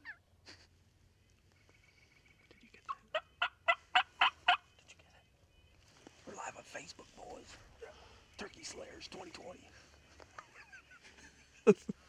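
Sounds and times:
turkey yelping: 0.0 - 0.2, 2.9 - 4.7.

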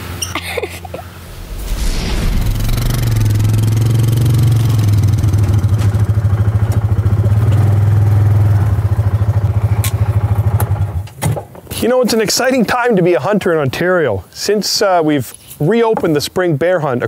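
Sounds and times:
vehicle engine throbbing: 1.0 - 10.5.

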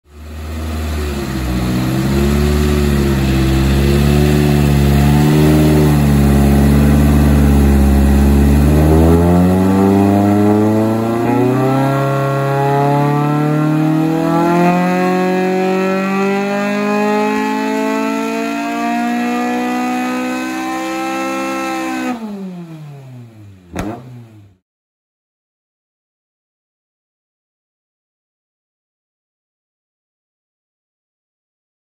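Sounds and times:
car engine revving on dyno: 0.1 - 24.6.

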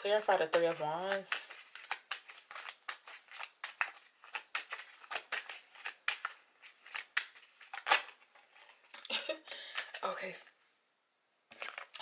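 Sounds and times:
cards being shuffled: 0.0 - 9.0, 11.5 - 12.0.

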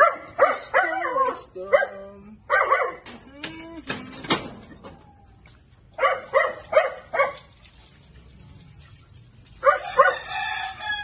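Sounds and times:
small dog barking: 0.0 - 3.0, 6.0 - 7.5, 9.6 - 10.3.

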